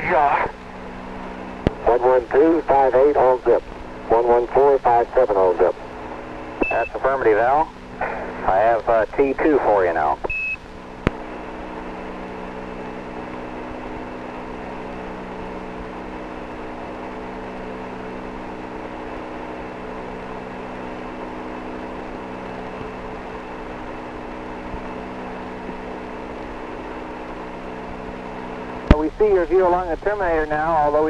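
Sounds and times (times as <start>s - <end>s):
radio static hiss: 0.0s - 14.0s, 20.2s - 31.0s
low multi-toned hum: 0.0s - 31.0s.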